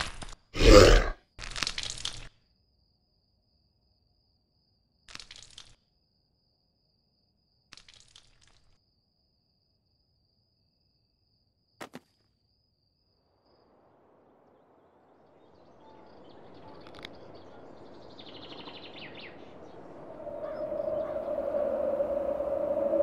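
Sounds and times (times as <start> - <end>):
whooshing noise: 18.5 - 23.0
droning tone: 19.4 - 23.0.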